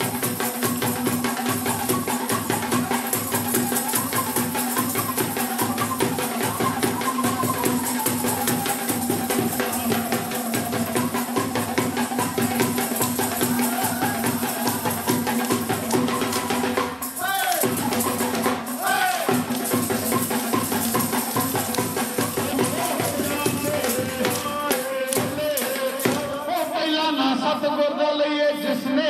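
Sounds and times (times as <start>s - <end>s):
folk music with drumming: 0.0s - 29.0s
high falling cries: 12.8s - 23.9s.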